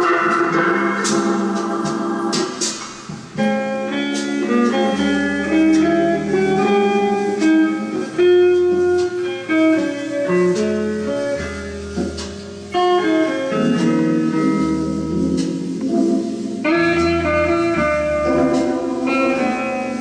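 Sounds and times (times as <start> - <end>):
plucked bass line: 0.0 - 13.0, 16.7 - 20.0
guitar instrumental music: 0.0 - 20.0.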